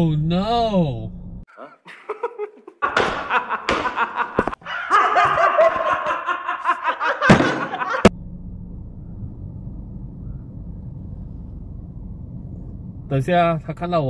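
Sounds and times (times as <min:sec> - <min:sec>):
men laughing loudly: 0:01.8 - 0:08.1
car idling heard from inside: 0:08.1 - 0:14.0.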